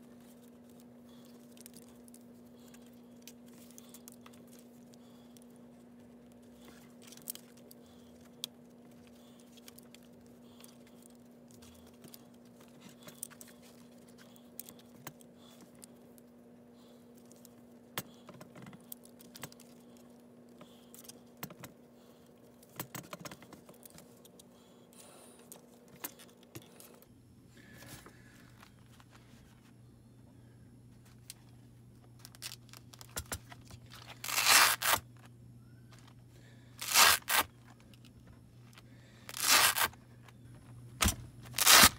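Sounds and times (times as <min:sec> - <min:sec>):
faint low hum: 0:00.0 - 0:41.9
cord clicking and rustling: 0:00.1 - 0:16.3.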